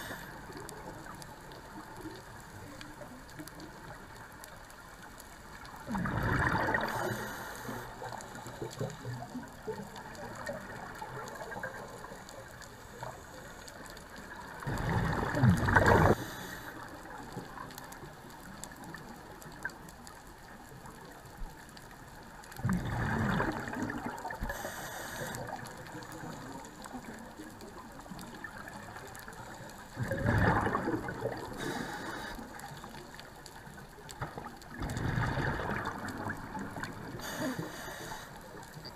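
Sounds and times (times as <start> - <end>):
watery hiss: 0.0 - 0.5, 6.1 - 9.1, 12.8 - 17.2, 23.0 - 26.8, 29.5 - 33.0, 37.0 - 38.9
underwater exhaled bubbles rushing: 5.7 - 13.2, 14.1 - 19.8, 22.5 - 38.9.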